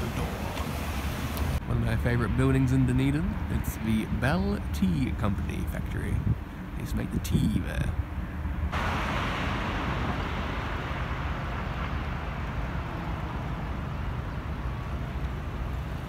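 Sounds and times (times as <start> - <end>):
steady low traffic rumble: 0.0 - 16.0
car tyre noise passing: 8.6 - 16.0.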